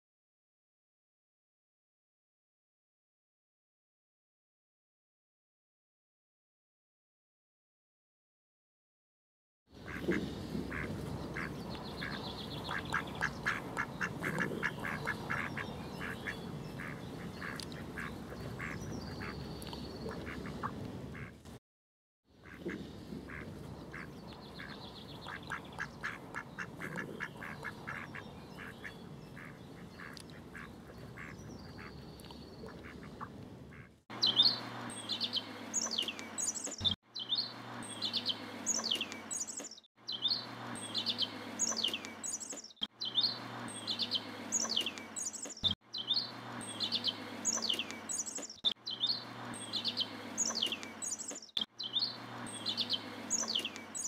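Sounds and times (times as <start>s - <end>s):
songbirds chirping: 9.8s - 21.5s, 22.4s - 54.0s
mallard calling: 10.7s - 19.4s, 20.1s - 21.4s, 22.4s - 32.0s.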